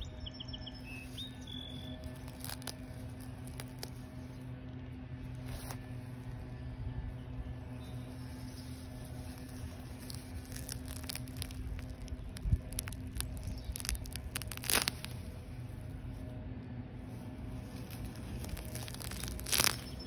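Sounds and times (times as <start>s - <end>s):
steady low hum: 0.0s - 20.0s
grass stems rustling and crackling: 1.0s - 4.4s, 7.6s - 16.2s, 17.1s - 20.0s.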